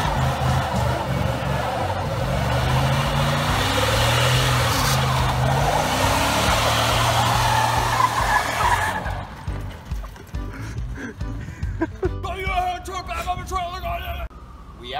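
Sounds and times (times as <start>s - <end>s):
truck engine revving: 0.0s - 10.5s
tyre squealing on pavement: 0.0s - 10.5s.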